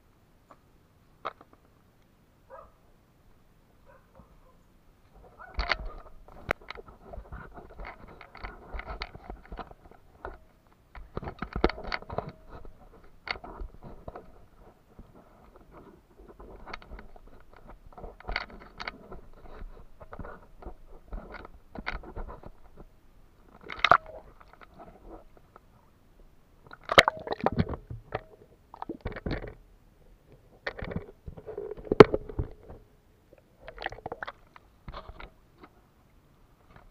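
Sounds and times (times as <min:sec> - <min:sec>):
muffled knocks and scrapes: 0:05.1 - 0:22.9
water splashes: 0:26.7 - 0:29.3.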